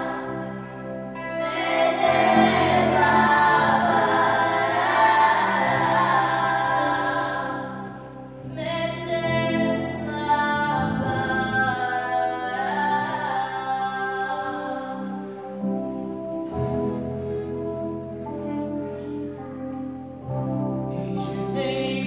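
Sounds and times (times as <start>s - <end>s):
children's choir singing: 0.0s - 15.2s
electronic keyboard low notes: 0.0s - 22.0s.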